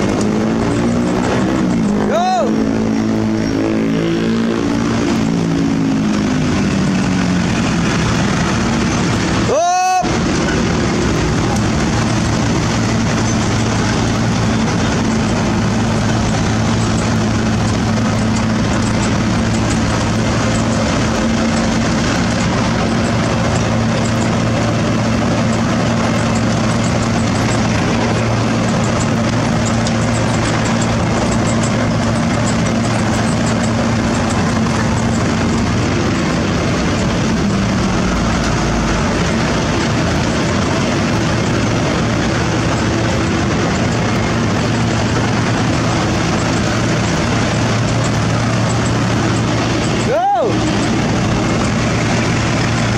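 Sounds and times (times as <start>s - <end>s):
heavy diesel engines droning: 0.0s - 52.9s.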